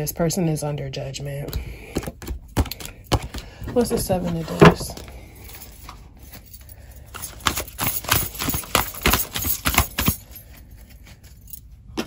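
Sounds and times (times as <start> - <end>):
cards clicking and tapping: 1.5 - 4.0.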